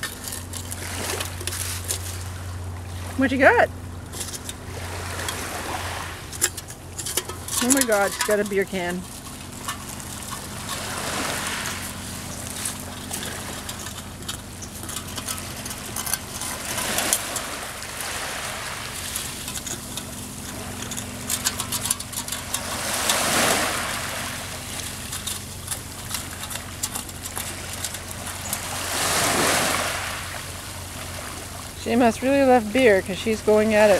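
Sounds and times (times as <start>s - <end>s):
small waves washing ashore: 0.0s - 33.9s
steady low hum: 0.0s - 33.9s
dog chewing a metal can: 6.3s - 11.0s, 12.2s - 17.6s, 19.1s - 23.6s.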